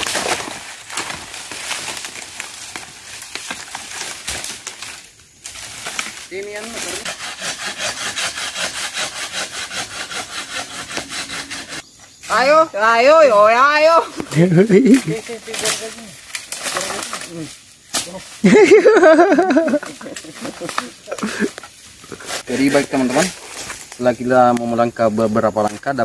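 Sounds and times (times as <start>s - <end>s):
sandpaper rubbing on bamboo: 5.5s - 12.0s, 14.6s - 18.5s, 19.5s - 23.8s.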